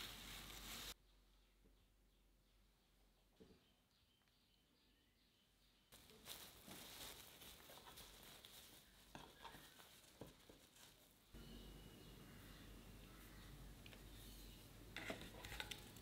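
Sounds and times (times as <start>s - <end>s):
cling film crinkling: 0.0s - 1.0s, 6.0s - 11.2s.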